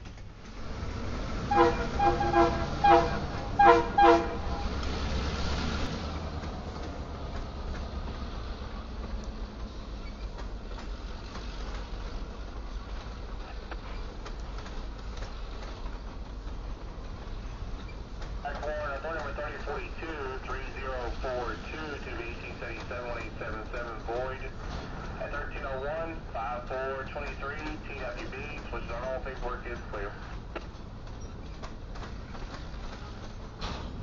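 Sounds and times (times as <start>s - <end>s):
freight train rumbling past: 0.0s - 34.0s
locomotive horn blasts: 1.5s - 4.8s.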